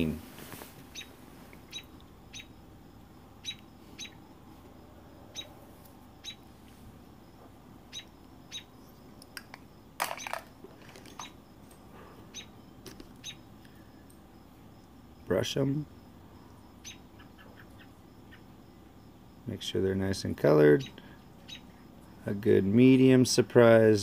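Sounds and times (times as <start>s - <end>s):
rustle: 0.0s - 1.7s.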